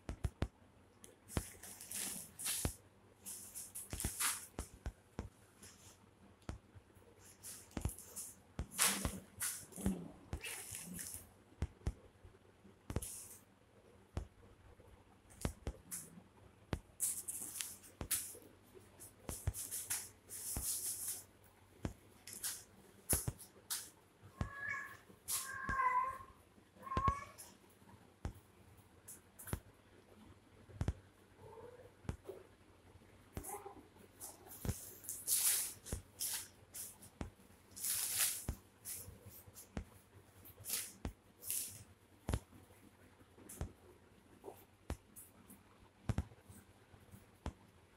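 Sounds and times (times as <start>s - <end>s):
plastic bag crinkling: 37.7s - 38.5s.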